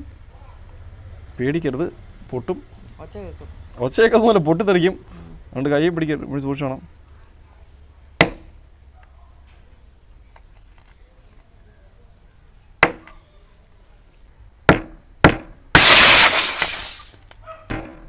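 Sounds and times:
hammer knocking on metal cracker: 14.7 - 15.6.

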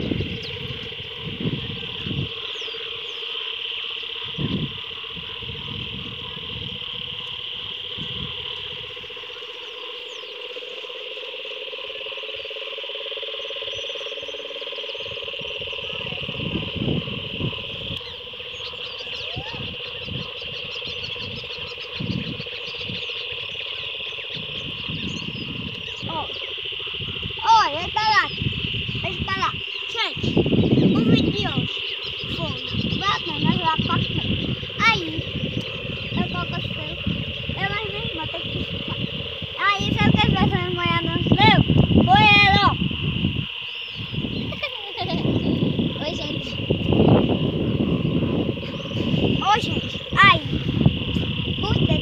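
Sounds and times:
high trill of frogs and insects: 0.0 - 52.0
rapidly pulsing buzz: 0.0 - 52.0
low rumbles on microphone: 30.2 - 52.0.

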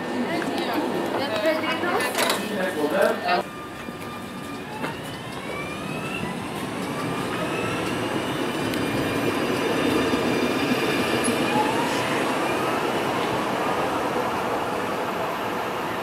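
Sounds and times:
tram motor whine: 3.3 - 16.0.

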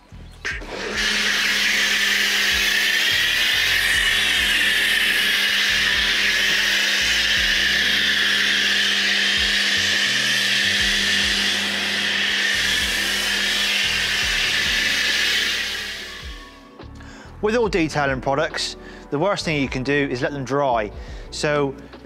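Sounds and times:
pressure washer spray hiss: 0.8 - 16.6.

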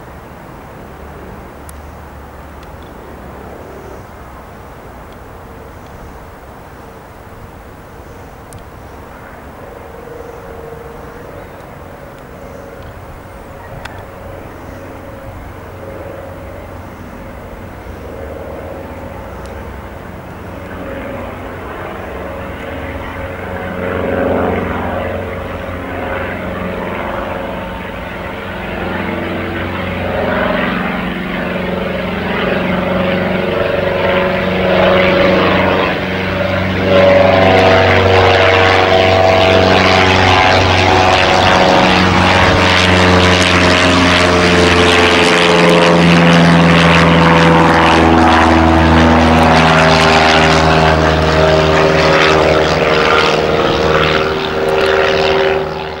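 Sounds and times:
propeller plane engine drone: 0.0 - 56.0.

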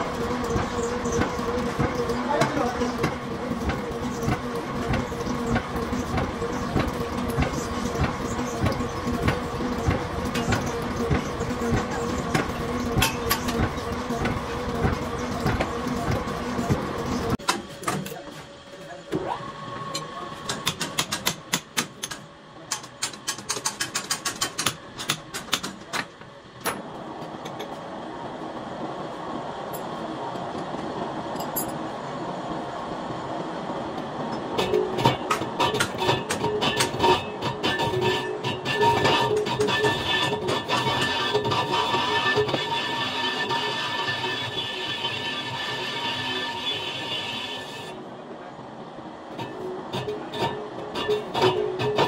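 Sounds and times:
lathe running: 0.0 - 17.4, 34.1 - 48.1
machine motor hum: 0.0 - 17.8
sharp metallic clicks and knocks: 20.5 - 26.8.

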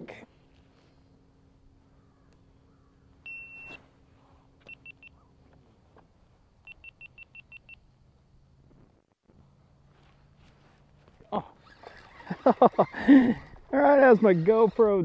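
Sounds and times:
faint steady hum: 0.0 - 15.0
high electronic camera beeps: 3.2 - 3.8, 4.6 - 5.2, 6.7 - 7.8.

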